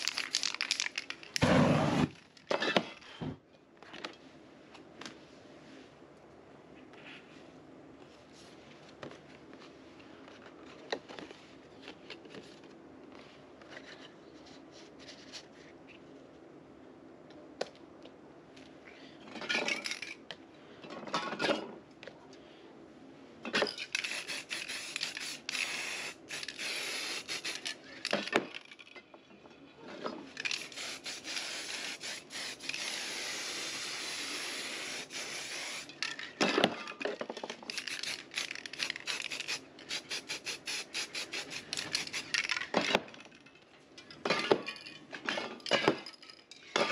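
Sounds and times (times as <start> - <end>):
spray paint can hissing: 0.0 - 2.1, 23.8 - 28.3, 30.4 - 35.9, 37.7 - 42.5.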